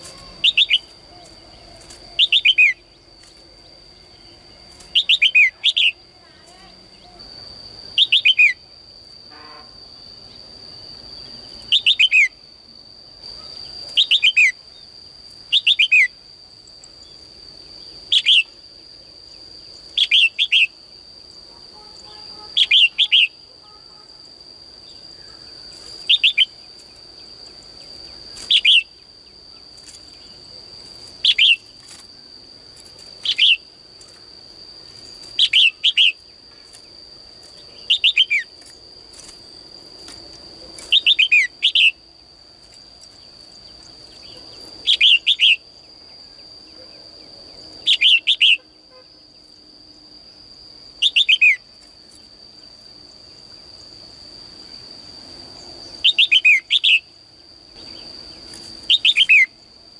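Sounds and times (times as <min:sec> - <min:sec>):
bulbul calling: 0:00.0 - 0:02.8, 0:08.0 - 0:08.6, 0:22.0 - 0:23.4.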